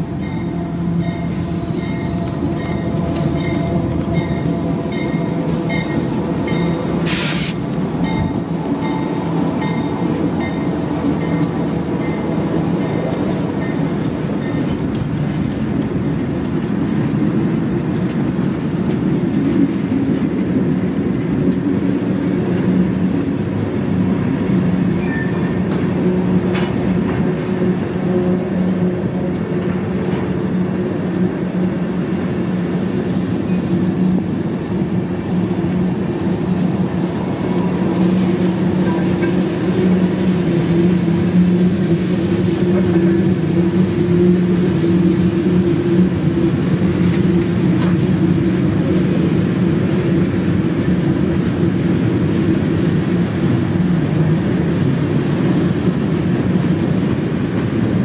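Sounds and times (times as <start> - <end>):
low drone: 0.0 - 16.2
freight train wheels rumbling on rails: 0.0 - 58.0.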